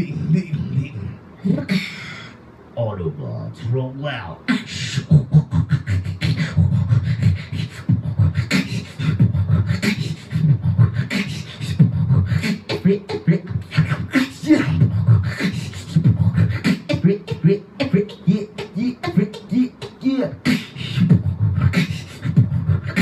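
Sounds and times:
person beatboxing: 0:04.5 - 0:23.0.

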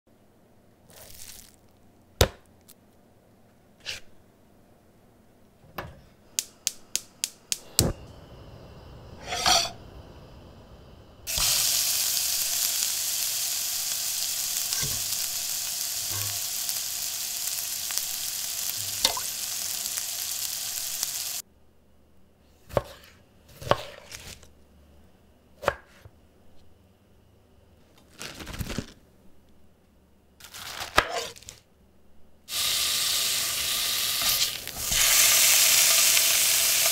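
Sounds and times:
frying pan sizzling: 0:06.4 - 0:21.4, 0:32.5 - 0:36.9.

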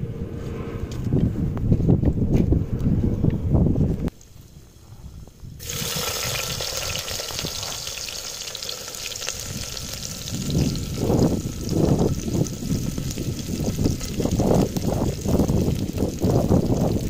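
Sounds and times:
wind rumble on microphone: 0:00.0 - 0:08.2, 0:09.2 - 0:17.0
onions sizzling in hot oil: 0:05.6 - 0:17.0.

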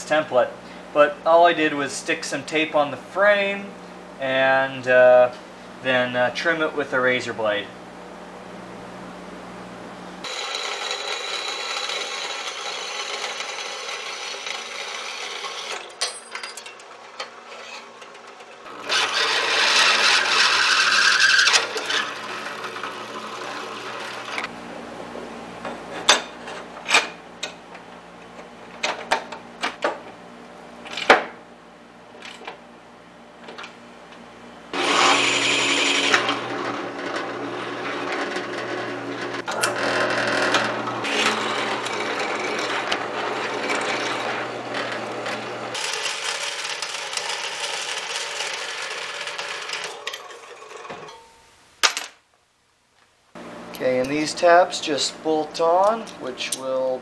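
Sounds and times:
drill press drilling: 0:10.2 - 0:15.9, 0:17.1 - 0:24.5, 0:34.7 - 0:51.0
bandsaw cutting metal: 0:10.2 - 0:24.5, 0:34.7 - 0:51.2.

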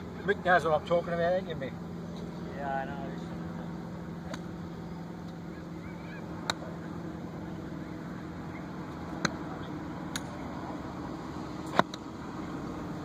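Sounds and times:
golf clubs striking balls: 0:04.2 - 0:05.5, 0:06.2 - 0:07.0, 0:08.5 - 0:10.4, 0:11.6 - 0:12.1.

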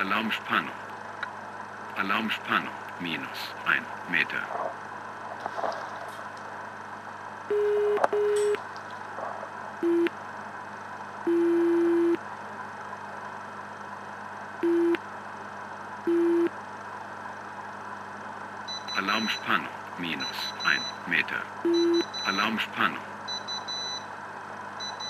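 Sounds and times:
alarm beeps: 0:07.5 - 0:08.6, 0:18.7 - 0:22.5, 0:23.3 - 0:24.1, 0:24.8 - 0:25.0.

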